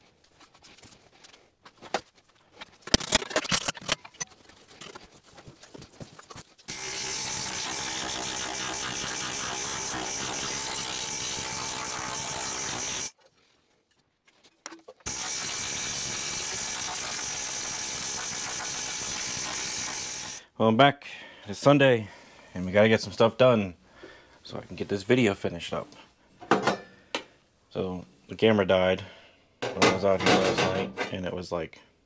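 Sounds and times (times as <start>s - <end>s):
planishing hammer rapid hammering: 6.7s - 13.1s
metal clanks and knocks: 29.6s - 31.2s.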